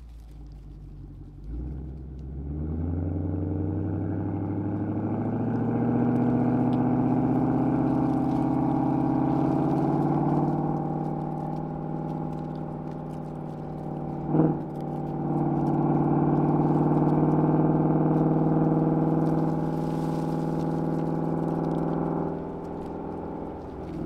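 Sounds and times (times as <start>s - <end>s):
car engine drone while driving: 0.0s - 24.0s.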